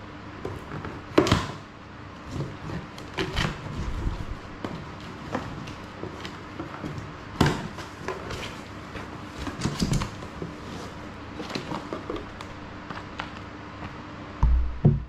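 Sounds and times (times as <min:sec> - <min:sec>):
cardboard flaps scraping and knocking: 0:02.2 - 0:13.4.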